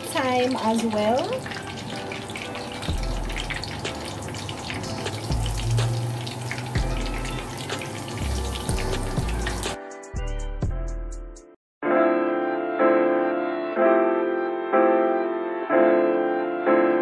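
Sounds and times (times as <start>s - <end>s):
garlic sizzling in hot oil: 0.0s - 9.8s
piano background music: 0.0s - 17.0s.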